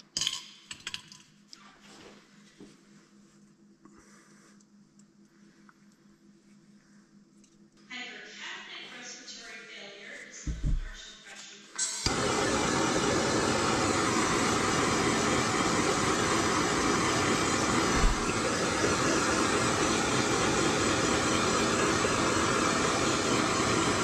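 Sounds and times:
gas torch flame hissing: 12.0s - 24.0s.

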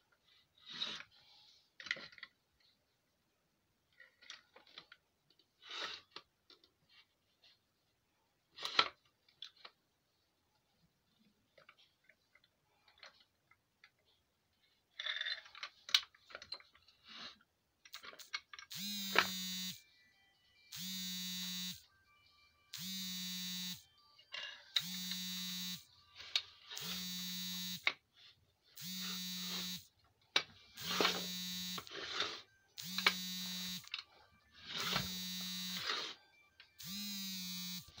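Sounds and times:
electric motor whirring whine: 18.7s - 19.8s, 20.8s - 21.8s, 22.8s - 23.8s, 24.8s - 25.8s, 26.8s - 27.8s, 28.8s - 29.8s, 30.8s - 31.9s, 32.8s - 33.9s, 34.7s - 36.0s, 36.8s - 38.0s.

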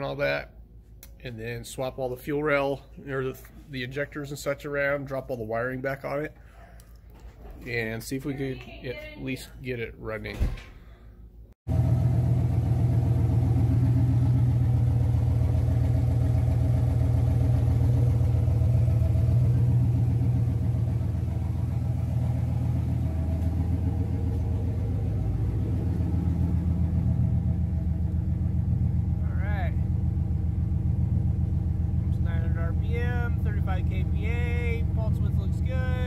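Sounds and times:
car engine idling: 11.7s - 36.0s.

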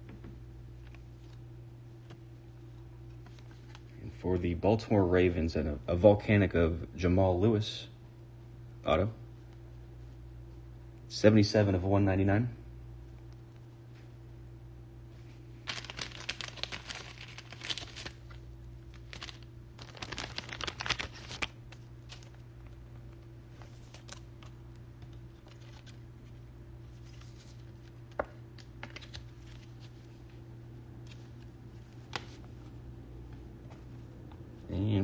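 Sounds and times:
steady low hum: 0.0s - 35.0s
crinkling plastic: 15.6s - 26.0s.

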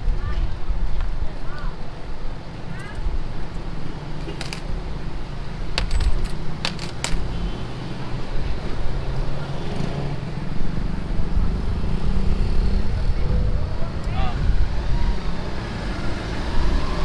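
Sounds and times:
vehicle engine and road rumble: 0.0s - 17.0s
metallic clinks and jingles: 4.2s - 4.7s, 5.8s - 7.4s.

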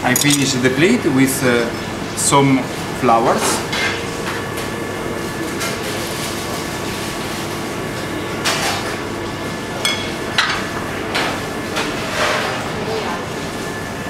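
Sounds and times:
metal tweezers clinking on plates: 0.0s - 0.6s
kitchen ventilation rushing: 0.0s - 14.0s.

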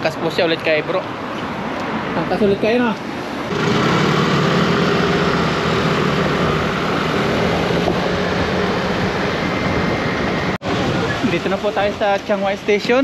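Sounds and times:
road noise: 0.0s - 13.0s
scooter engine running: 3.5s - 10.5s.

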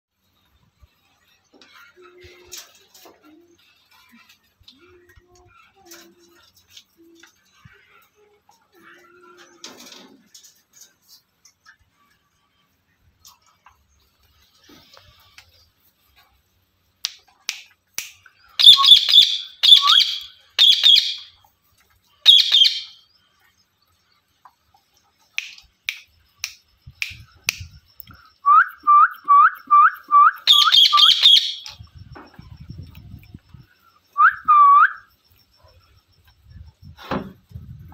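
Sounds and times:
parakeets screeching: 18.6s - 21.3s, 22.2s - 23.0s, 30.5s - 31.8s
short rising chirps: 18.6s - 21.3s, 28.2s - 31.9s.

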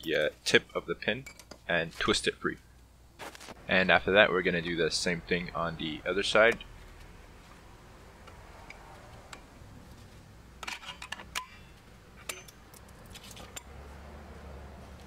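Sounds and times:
pliers twisting brake spring: 10.6s - 13.8s.

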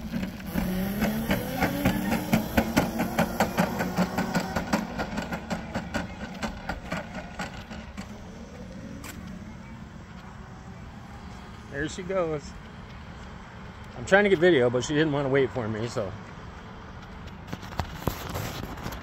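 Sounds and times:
electric kart motor hum: 0.0s - 10.8s.

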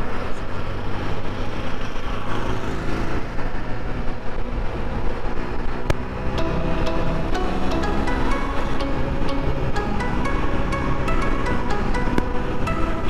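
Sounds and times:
road noise: 0.0s - 13.0s
wind: 0.0s - 13.0s
motorcycle engine humming: 4.5s - 13.0s.

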